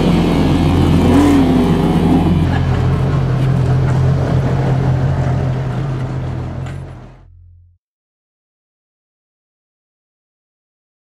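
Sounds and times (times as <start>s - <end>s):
car engine idling: 0.0s - 7.6s.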